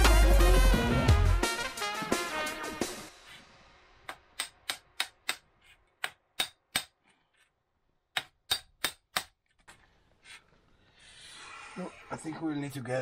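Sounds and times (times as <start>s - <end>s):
hammer striking steel chisel: 4.1s - 7.0s, 8.1s - 9.4s.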